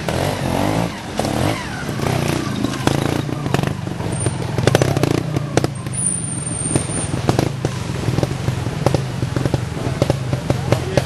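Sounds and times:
motorcycle engine popping and crackling: 0.0 - 11.0.

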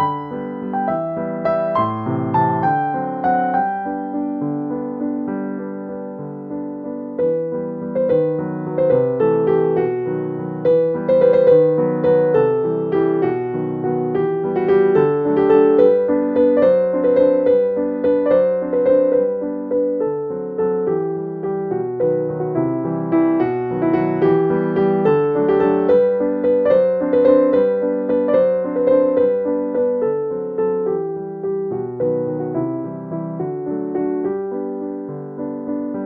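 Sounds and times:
gentle piano music: 0.0 - 36.0.

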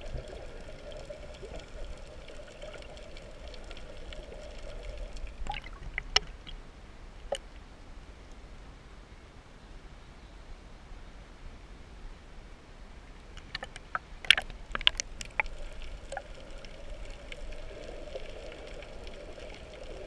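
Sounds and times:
water splashes and drips: 0.0 - 6.6, 7.2 - 7.7, 13.4 - 20.0
quiet hiss: 0.0 - 20.0.

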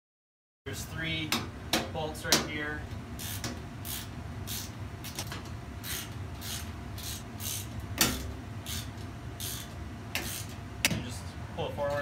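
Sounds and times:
ratchet wrench clicking: 3.2 - 10.6.

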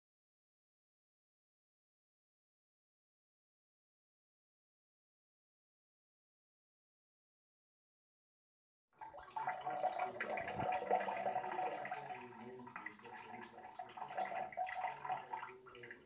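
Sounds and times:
water trickling into toilet bowl: 9.0 - 16.0.

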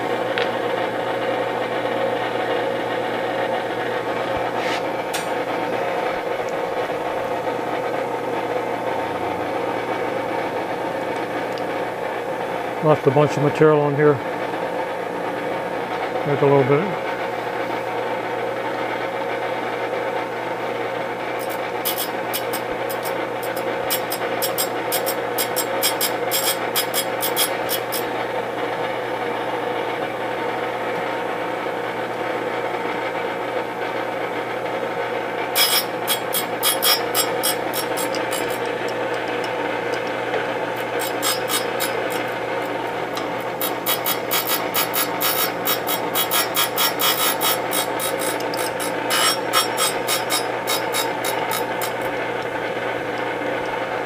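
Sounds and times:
grinder motor hum: 0.0 - 18.8, 19.5 - 54.0
grinding wheel rasping on metal: 21.4 - 28.1, 35.6 - 52.2.

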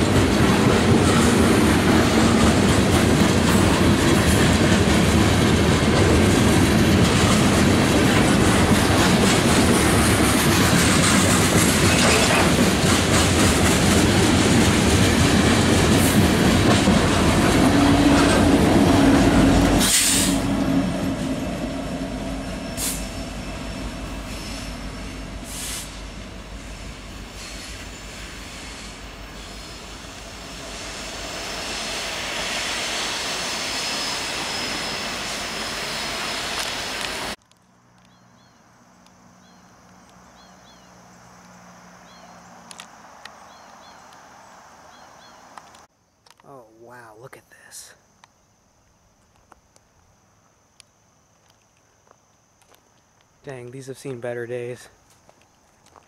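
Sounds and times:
diesel locomotive approaching: 0.0 - 45.9
freight cars rolling past: 0.0 - 45.9
small bird chirps: 38.0 - 41.0.

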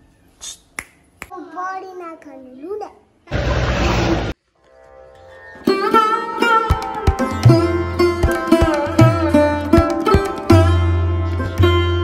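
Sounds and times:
instrumental background music: 4.5 - 12.0.

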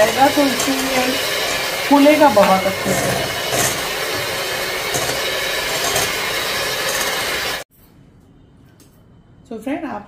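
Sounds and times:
electric hand mixer whirring: 0.0 - 7.7.

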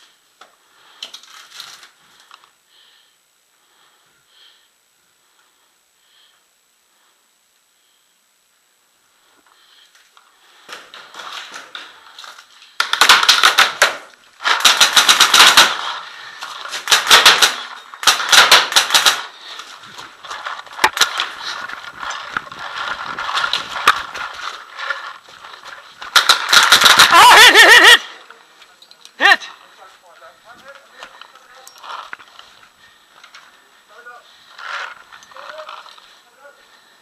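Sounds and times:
paintball marker firing shots: 12.8 - 16.0, 16.7 - 19.3.

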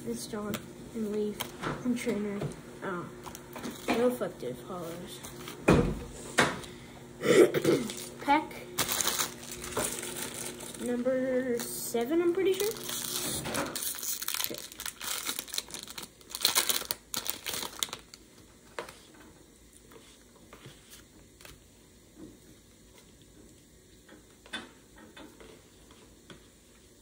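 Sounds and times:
foil wrapper crinkling and tearing: 7.8 - 19.0.

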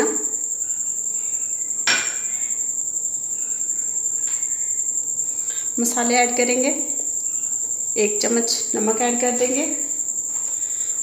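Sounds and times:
steady high-pitched whine: 0.0 - 11.0.

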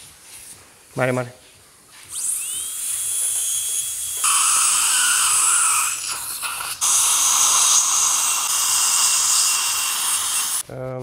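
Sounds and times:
dental drill whining: 2.1 - 10.6.

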